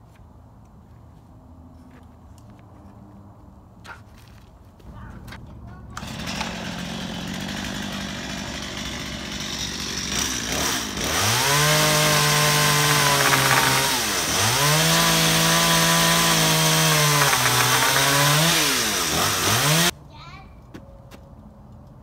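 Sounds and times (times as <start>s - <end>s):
chainsaw cutting wood: 6.0s - 19.9s.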